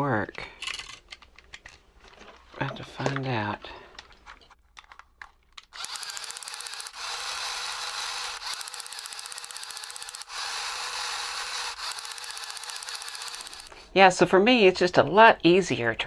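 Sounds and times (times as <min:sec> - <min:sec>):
small electric motors whirring: 0:05.7 - 0:13.7.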